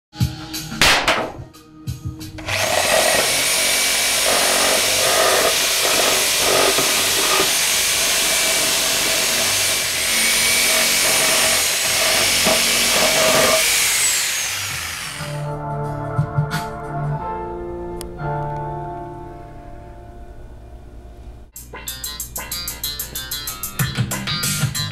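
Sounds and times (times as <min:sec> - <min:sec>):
reciprocating saw cutting wood: 0:02.4 - 0:15.5.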